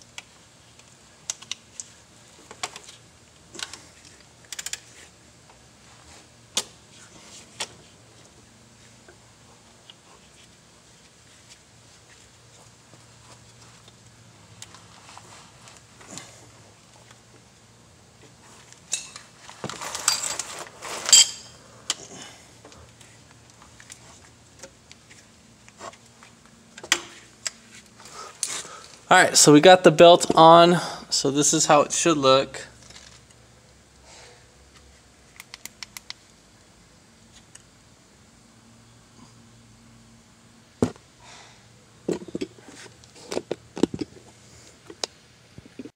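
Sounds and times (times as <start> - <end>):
metal tool clinking and scraping: 19.9 - 21.6.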